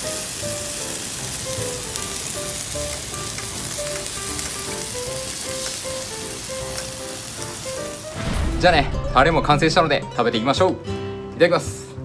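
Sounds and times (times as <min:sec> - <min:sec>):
food sizzling on a charcoal grill: 0:00.0 - 0:09.0
light background music: 0:00.0 - 0:12.0.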